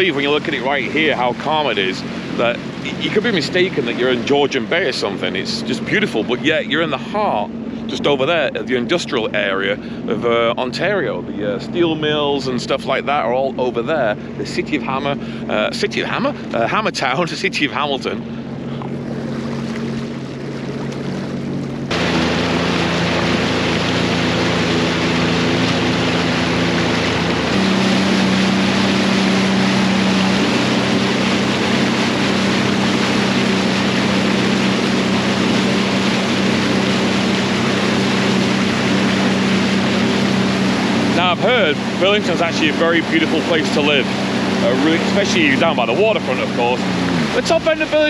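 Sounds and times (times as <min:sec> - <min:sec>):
watercraft engine running: 0:00.0 - 0:48.0
rush of spray and wind: 0:21.9 - 0:48.0.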